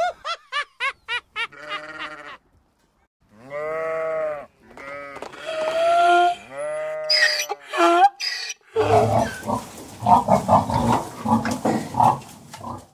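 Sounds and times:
animal bleating: 1.5s - 2.4s, 3.3s - 9.6s.

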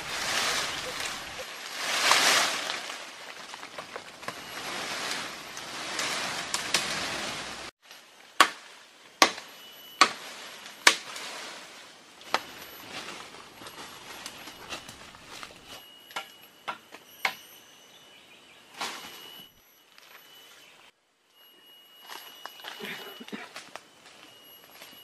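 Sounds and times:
rustling through dry leaves: 0.0s - 16.0s.

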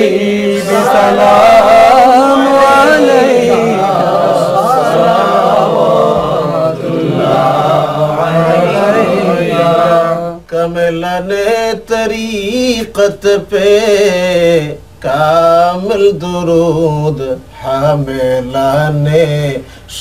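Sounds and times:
men singing unaccompanied: 0.0s - 20.0s.

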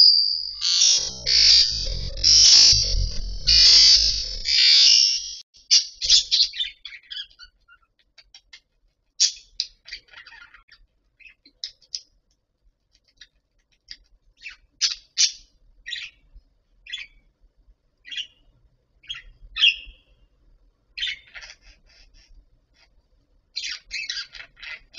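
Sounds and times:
budgerigars chirping: 23.6s - 24.9s.

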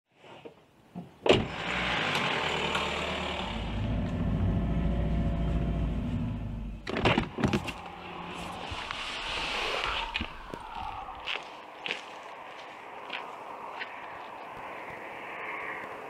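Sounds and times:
mechanical running with low hum: 1.6s - 8.7s.

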